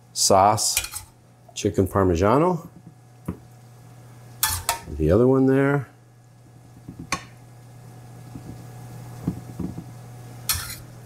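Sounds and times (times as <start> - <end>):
spoon knocking against a pan: 9.2 - 9.9.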